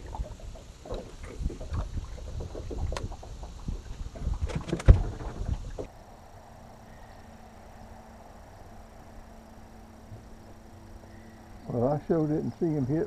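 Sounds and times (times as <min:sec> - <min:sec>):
knocks and bumps in a boat: 0:00.0 - 0:05.9.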